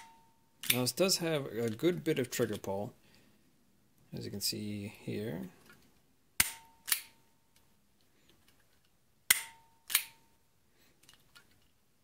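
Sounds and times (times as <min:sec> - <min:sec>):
trigger mechanism metallic clicks: 0:06.4 - 0:07.2, 0:09.3 - 0:10.3.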